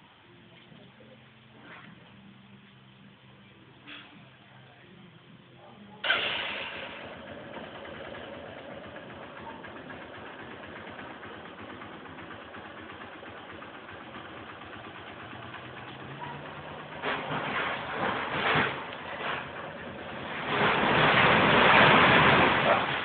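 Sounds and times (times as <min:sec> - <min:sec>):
motorcycle engine idling: 0:06.0 - 0:20.4.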